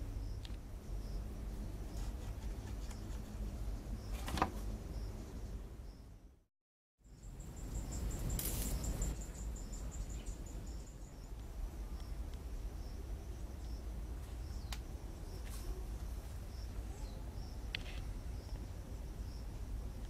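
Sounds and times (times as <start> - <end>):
insect chirping pulses: 7.0 - 20.0.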